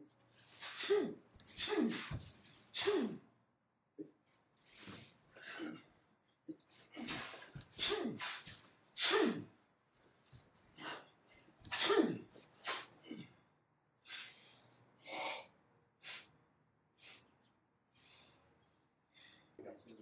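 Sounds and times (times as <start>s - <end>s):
person exhaling in sharp huffs: 0.5s - 3.2s, 6.9s - 9.4s, 11.7s - 13.2s.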